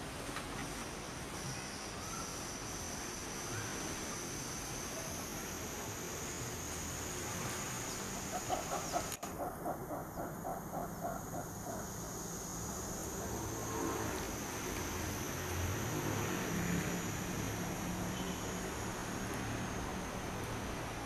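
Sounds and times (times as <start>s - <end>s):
steady hiss: 0.0s - 21.0s
thin high whine: 1.4s - 21.0s
animal clucking calls: 8.1s - 12.0s.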